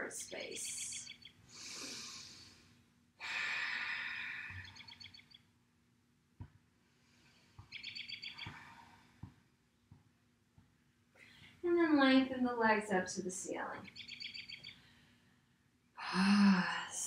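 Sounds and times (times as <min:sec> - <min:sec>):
person breathing out: 0:01.5 - 0:02.6
rapid high chirping trill: 0:07.7 - 0:08.5.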